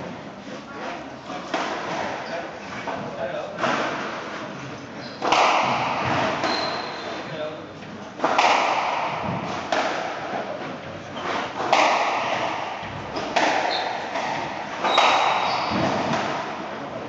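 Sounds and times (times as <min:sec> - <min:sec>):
squash ball hits: 0:05.2 - 0:07.4, 0:08.1 - 0:17.0.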